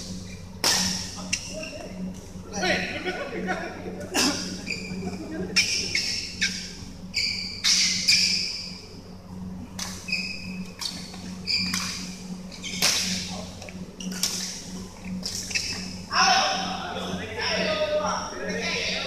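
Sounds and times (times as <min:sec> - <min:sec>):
low hum in hall: 0:00.0 - 0:19.0
racket hitting shuttlecock: 0:00.6 - 0:01.0
sneakers squeaking on court floor: 0:09.8 - 0:12.0, 0:14.0 - 0:16.0.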